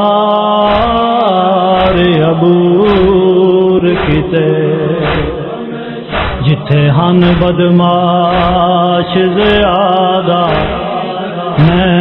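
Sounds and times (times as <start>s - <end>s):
man singing a lament: 0.0s - 12.0s
regular beat: 2.8s - 3.3s, 3.9s - 4.4s, 5.0s - 5.4s, 6.1s - 6.5s, 8.3s - 8.7s, 10.5s - 10.9s.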